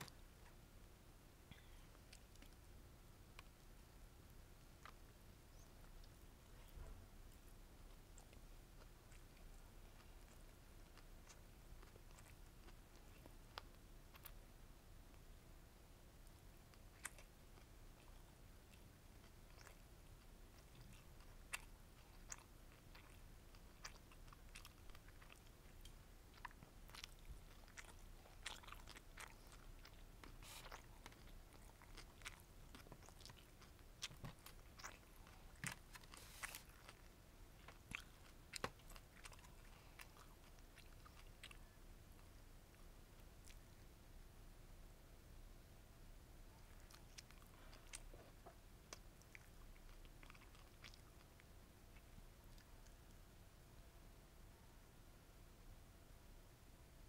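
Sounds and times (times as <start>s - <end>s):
chewing with wet clicks and crunches: 1.5s - 15.5s, 16.2s - 43.8s, 46.5s - 53.2s.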